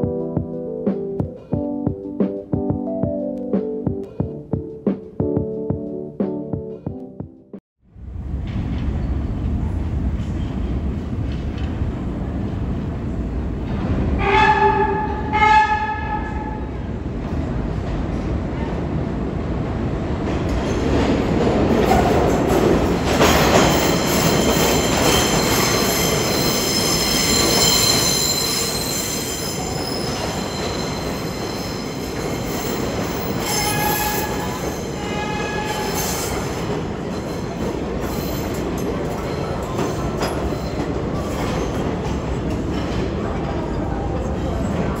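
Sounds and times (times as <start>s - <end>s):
subway train rumble and clatter: 7.8s - 45.0s
steel wheel squeal: 23.9s - 36.5s.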